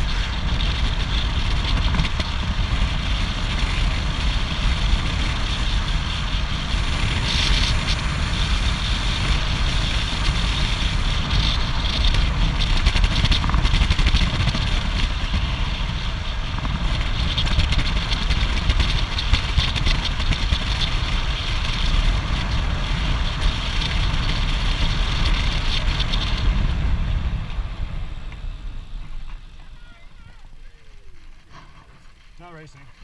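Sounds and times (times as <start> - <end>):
wind buffeting microphone: 0.0 - 33.0.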